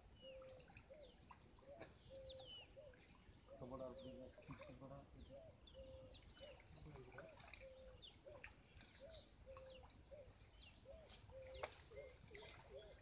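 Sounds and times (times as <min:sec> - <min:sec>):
low bird call: 0:00.1 - 0:13.0.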